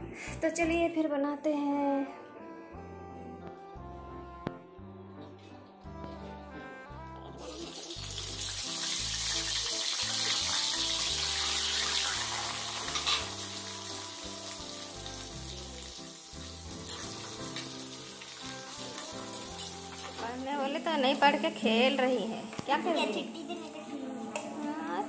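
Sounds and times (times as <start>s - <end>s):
background music: 0.0s - 25.0s
onions sizzling in hot oil: 7.4s - 22.0s.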